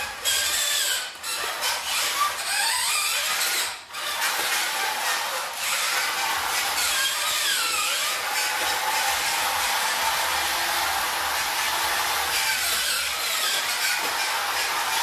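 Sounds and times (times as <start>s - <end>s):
toy truck motor whining: 0.0s - 15.0s.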